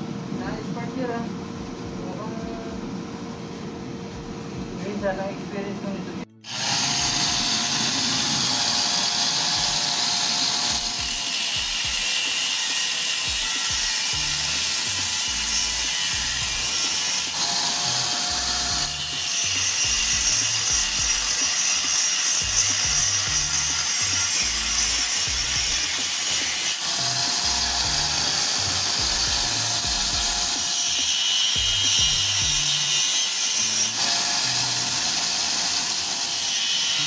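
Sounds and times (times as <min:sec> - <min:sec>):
angle grinder cutting steel: 0:06.3 - 0:37.0.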